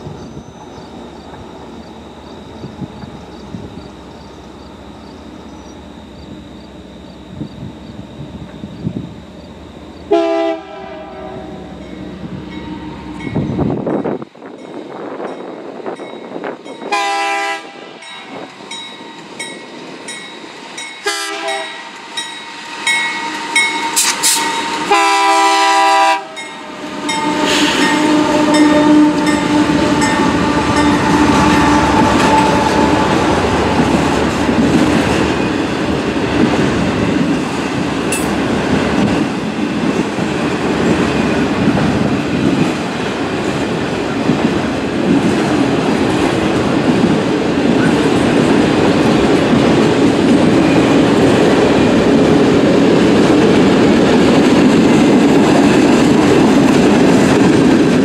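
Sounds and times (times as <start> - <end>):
train horn blasts: 10.0 - 13.7, 16.8 - 18.1, 21.0 - 34.7
train wheels clattering over rails: 27.0 - 58.0.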